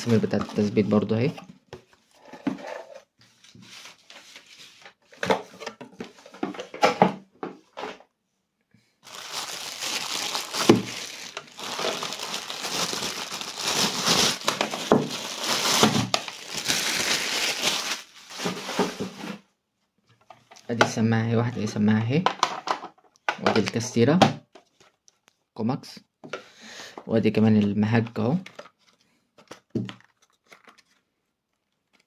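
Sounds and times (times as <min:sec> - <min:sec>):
plastic packaging crinkling: 0:09.0 - 0:19.1, 0:28.4 - 0:32.0.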